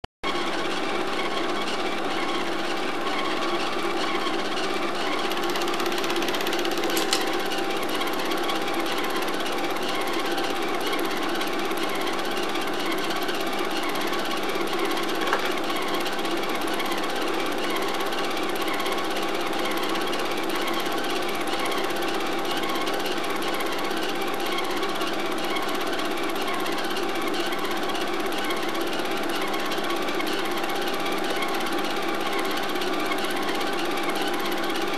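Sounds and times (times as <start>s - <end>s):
projector motor hum: 0.3s - 27.1s
film projector clattering: 0.3s - 34.9s.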